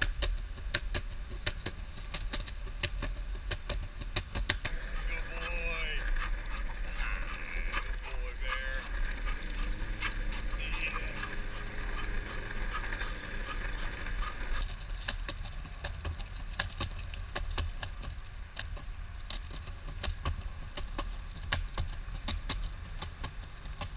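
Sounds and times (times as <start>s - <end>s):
leaves crackling under wheels: 0.0s - 23.8s
longboard wheels rolling on pavement: 0.0s - 23.9s.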